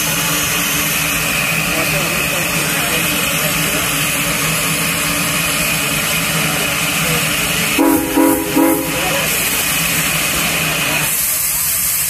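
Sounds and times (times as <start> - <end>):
moving train running noise: 0.0 - 12.0
steam locomotive whistle blasts: 7.8 - 9.6.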